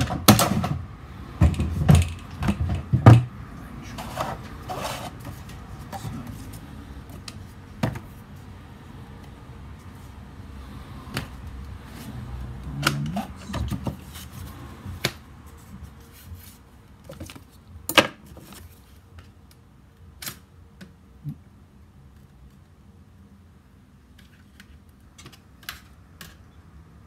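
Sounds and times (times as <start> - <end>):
paper rustling: 12.8 - 17.6.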